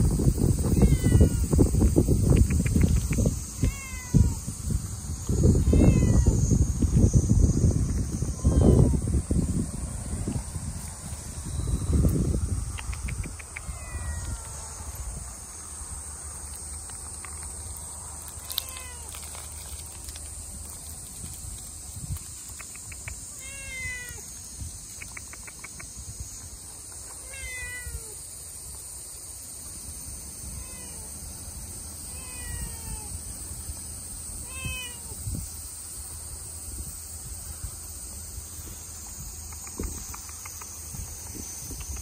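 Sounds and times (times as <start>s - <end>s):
cat meowing: 0.7s - 1.6s, 3.6s - 4.4s, 5.5s - 6.4s, 8.3s - 9.0s, 13.6s - 14.8s, 18.4s - 19.1s, 23.4s - 24.2s, 27.2s - 28.2s, 30.5s - 31.1s, 32.1s - 33.2s, 34.4s - 35.2s.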